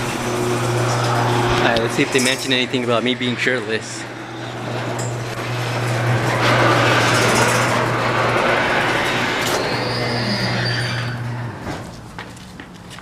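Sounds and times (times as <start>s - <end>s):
garage door opener running: 0.0s - 12.2s
chain-drive rattle: 6.4s - 8.4s.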